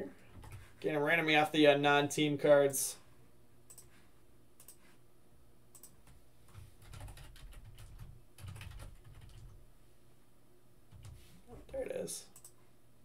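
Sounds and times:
keyboard typing: 0.3 - 0.7, 3.7 - 3.9, 5.7 - 9.6, 10.9 - 11.2.

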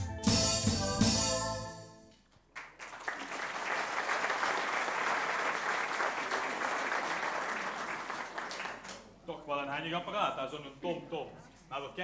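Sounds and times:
audience applauding: 2.4 - 9.1.

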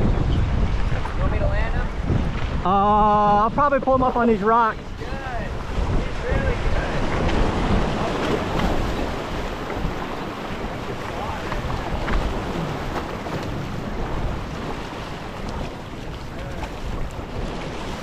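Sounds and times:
wind buffeting microphone: 0.0 - 18.0
small waves splashing on rocks: 4.7 - 18.0.

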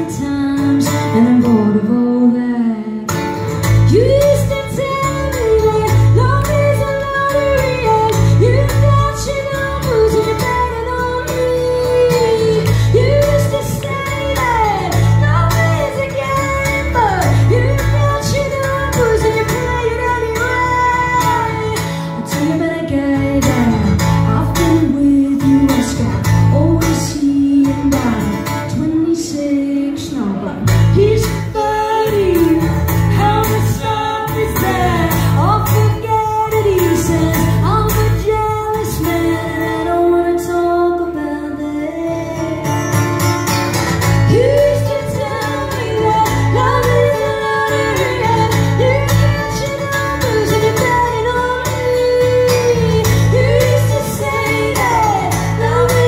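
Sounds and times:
strummed acoustic guitars: 0.0 - 56.0
woman singing lead vocal: 0.0 - 56.0.

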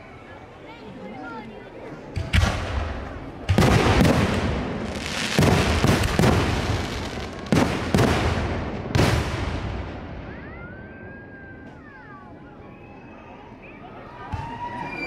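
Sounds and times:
firework shells booming: 2.2 - 10.1
firework crackle: 2.3 - 10.0.

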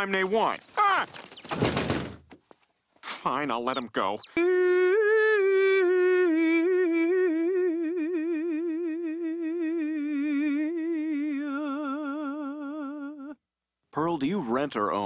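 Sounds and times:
woman singing operatic line: 4.4 - 13.4.

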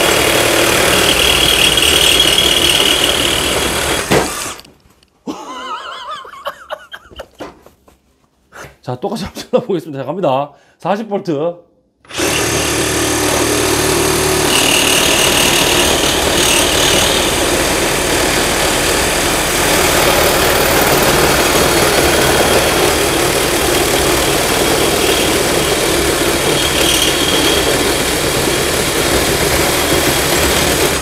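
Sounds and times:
reciprocating saw cutting steel: 0.0 - 4.6, 12.1 - 31.0.

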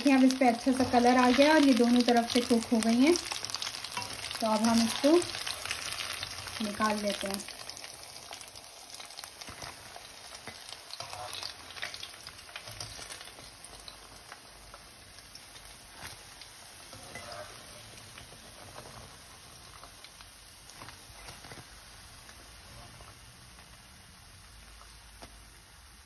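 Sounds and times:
hot oil sizzling and crackling: 0.0 - 26.0.

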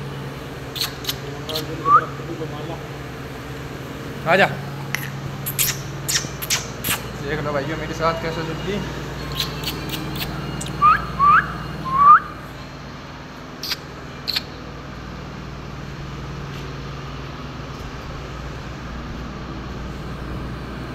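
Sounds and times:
steady low hum: 0.0 - 20.9
sharp mouth clicks: 0.8 - 1.7, 4.9 - 7.1, 9.3 - 10.8, 13.6 - 14.5
person whistling: 1.8 - 2.1, 10.6 - 12.4.

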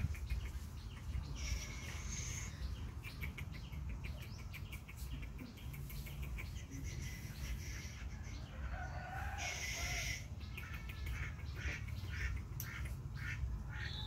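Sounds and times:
steady low rumble: 0.0 - 8.4
fowl and bird calls: 0.0 - 14.0.

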